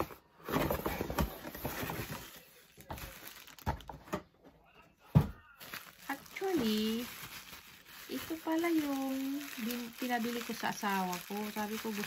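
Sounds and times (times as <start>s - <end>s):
paper and packaging rustling: 0.0s - 4.4s, 5.1s - 12.0s.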